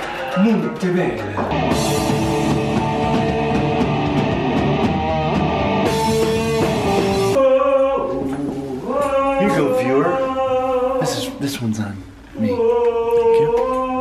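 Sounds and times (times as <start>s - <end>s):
drums: 0.0s - 7.4s
electric guitars: 1.4s - 7.4s
person singing: 1.6s - 4.6s
cymbals: 5.8s - 7.4s.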